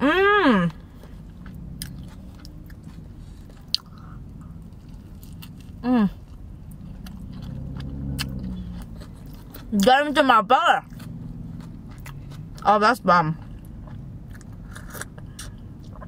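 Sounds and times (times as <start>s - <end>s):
person humming mm: 0.0s - 0.8s
wet chewing: 0.7s - 9.9s, 10.8s - 12.7s, 13.3s - 16.0s.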